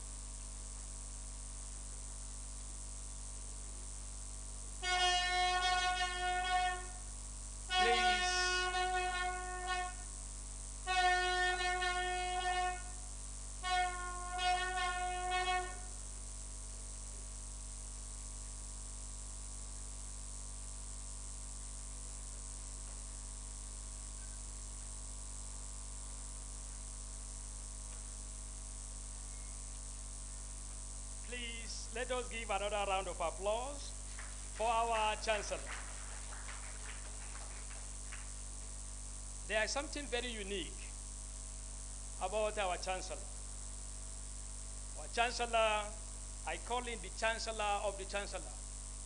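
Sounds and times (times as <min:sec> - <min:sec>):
electrical mains hum: 0:00.0 - 0:49.0
horn blasts: 0:04.8 - 0:07.0, 0:07.7 - 0:10.1, 0:10.9 - 0:13.0, 0:13.6 - 0:15.9.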